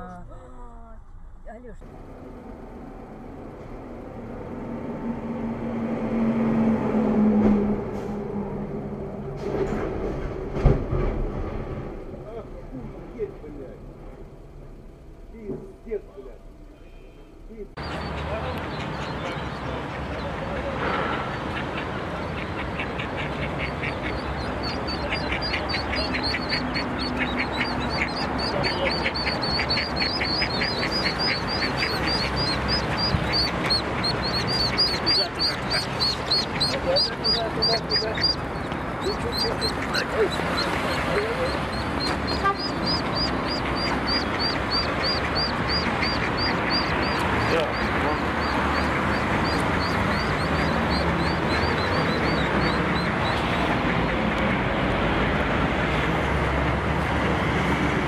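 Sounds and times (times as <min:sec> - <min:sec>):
duck quacking: 0:17.8 - 0:54.6
ducklings peeping: 0:17.8 - 0:54.6.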